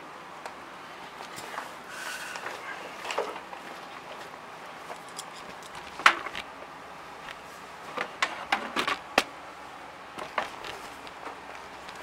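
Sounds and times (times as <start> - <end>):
handling clicks and knocks: 4.9 - 6.5.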